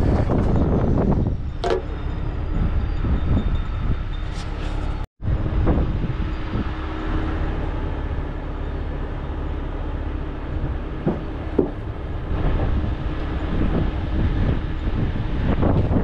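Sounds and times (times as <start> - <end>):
diesel truck engine rumbling: 0.0 - 16.0
short knocks: 11.0 - 11.8.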